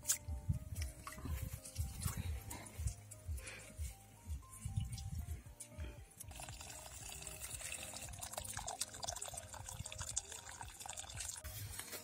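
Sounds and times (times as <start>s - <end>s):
water pouring into a steel bowl: 6.3s - 11.4s.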